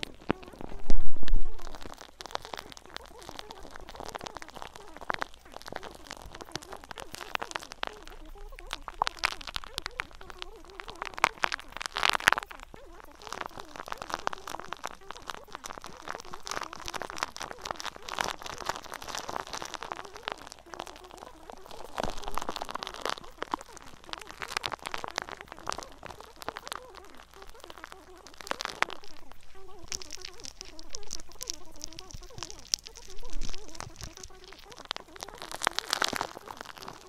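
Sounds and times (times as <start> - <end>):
dense crackling clicks: 0.0 - 37.0.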